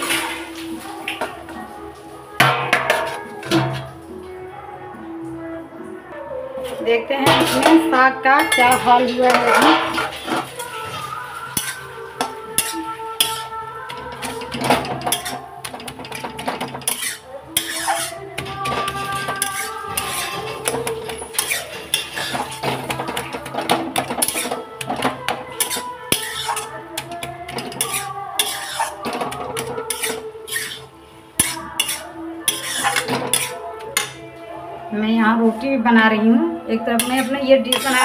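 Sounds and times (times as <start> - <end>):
spatula scraping metal pan: 2.4 - 4.0, 7.2 - 34.3, 36.8 - 38.0.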